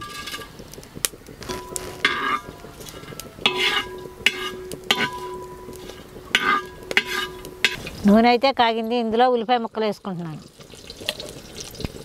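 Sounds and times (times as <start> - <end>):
spoon scraping a pot: 0.0 - 0.6, 1.4 - 8.0
faint sizzle: 0.0 - 12.0.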